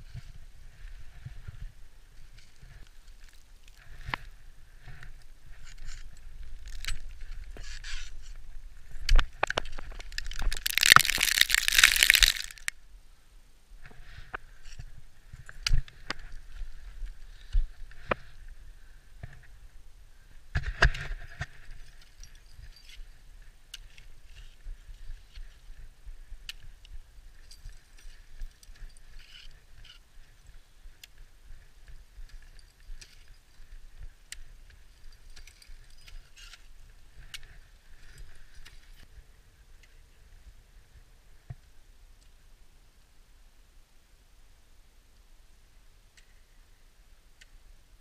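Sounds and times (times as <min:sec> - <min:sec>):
metal climbing gear clicks: 0:05.6 - 0:08.1
ice axes striking ice: 0:10.2 - 0:12.7.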